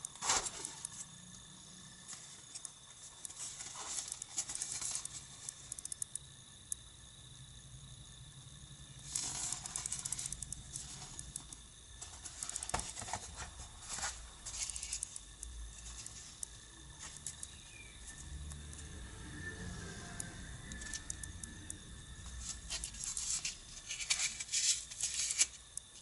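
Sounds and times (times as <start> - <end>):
cardboard box rustling: 12.0 - 14.8.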